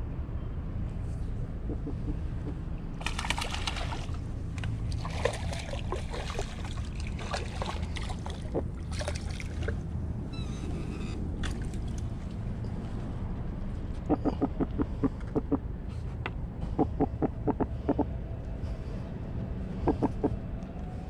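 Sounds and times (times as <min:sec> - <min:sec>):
low rumble: 0:00.0 - 0:21.0
fish splashing in water: 0:03.0 - 0:09.8, 0:11.4 - 0:12.4.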